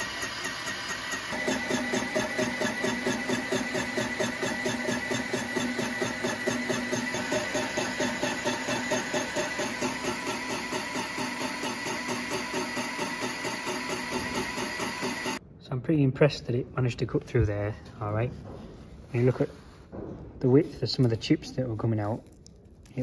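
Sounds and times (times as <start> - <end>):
boring machine drive humming: 0.0 - 15.4
tool cutting metal pulses: 0.0 - 15.4.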